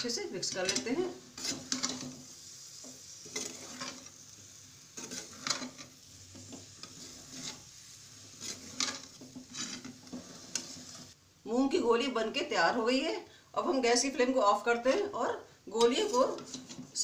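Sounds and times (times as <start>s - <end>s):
metal spatula scraping a pan: 0.0s - 11.2s, 15.7s - 17.0s
oil sizzling quietly: 0.0s - 11.5s.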